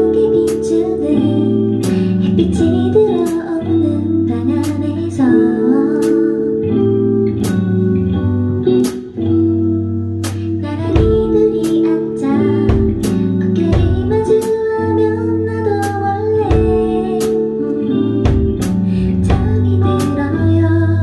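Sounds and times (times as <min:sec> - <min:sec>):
woman singing into microphone: 0:00.0 - 0:07.2, 0:10.2 - 0:21.0
held instrumental chords: 0:00.0 - 0:21.0
soft regular beat: 0:08.7 - 0:09.2, 0:10.2 - 0:11.9, 0:12.6 - 0:14.7, 0:15.8 - 0:17.6, 0:18.2 - 0:20.3.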